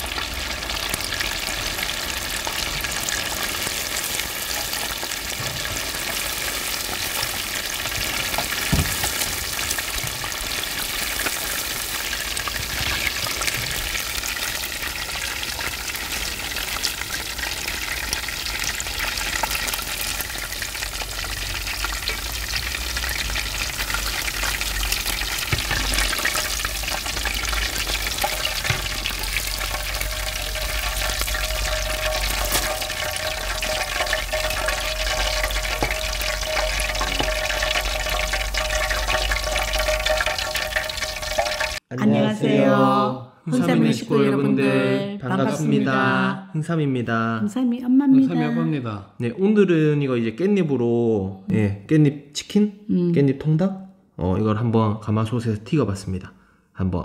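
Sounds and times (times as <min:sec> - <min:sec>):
chicken sizzling in hot oil: 0:00.0 - 0:41.8.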